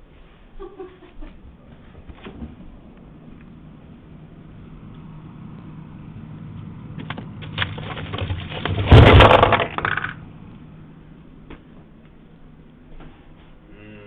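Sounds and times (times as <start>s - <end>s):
frozen food packages knocking: 7.4s - 10.2s.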